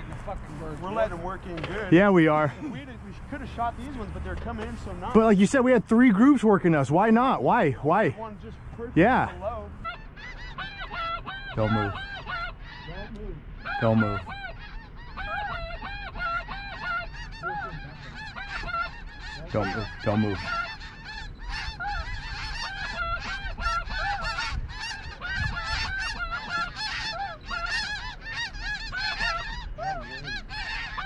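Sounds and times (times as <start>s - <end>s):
flock of geese honking: 0.0s - 31.0s.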